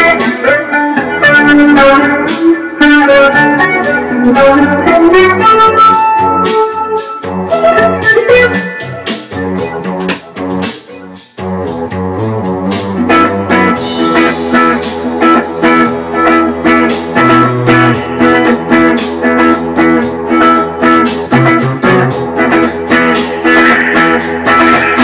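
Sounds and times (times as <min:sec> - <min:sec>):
electric guitar: 0:00.0 - 0:25.0
keyboard tones: 0:07.6 - 0:11.3, 0:13.7 - 0:19.0.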